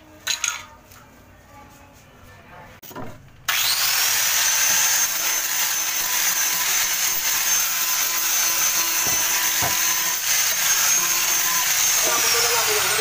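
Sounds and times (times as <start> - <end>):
electric sander on wood: 3.5 - 13.0.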